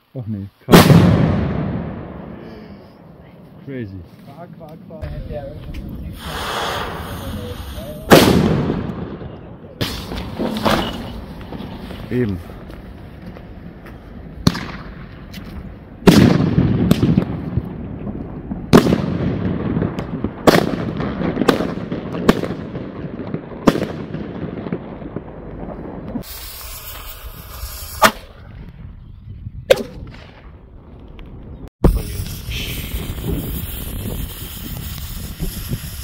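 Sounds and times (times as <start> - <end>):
firecrackers banging: 4.0 - 28.3, 31.8 - 36.0
hiss: 6.1 - 8.2, 26.2 - 28.2, 31.9 - 36.0.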